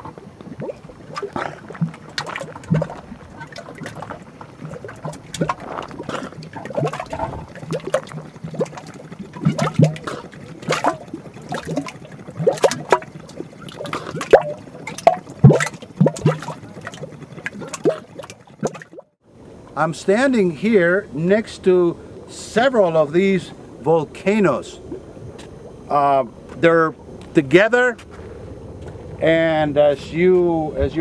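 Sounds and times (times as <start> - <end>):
mud bubbling and plopping: 0.0 - 19.2.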